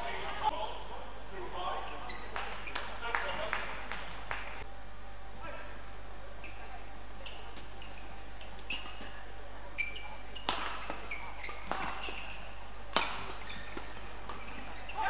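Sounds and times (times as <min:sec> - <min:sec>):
shoes squeaking on court: 0:01.8 - 0:03.6, 0:06.4 - 0:15.0
rackets hitting shuttlecock: 0:02.3 - 0:04.5, 0:10.4 - 0:15.0.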